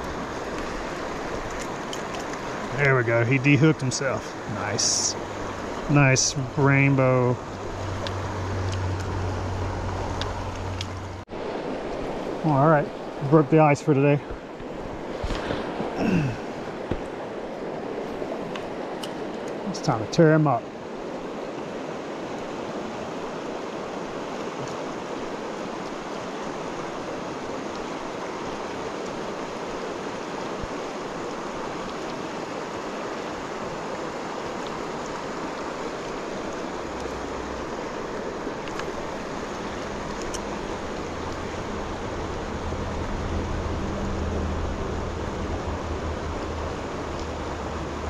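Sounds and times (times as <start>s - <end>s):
river flowing over rocks: 0.0s - 48.0s
low rumble: 40.8s - 48.0s.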